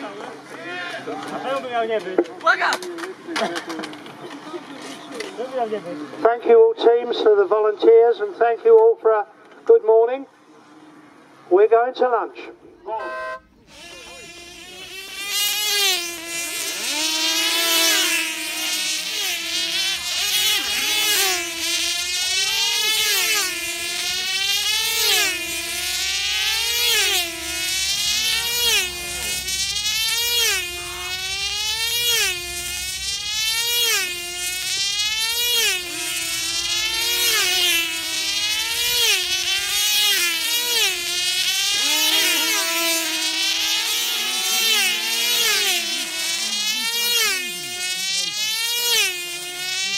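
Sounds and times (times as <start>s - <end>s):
model plane engine screaming: 12.9s - 49.9s.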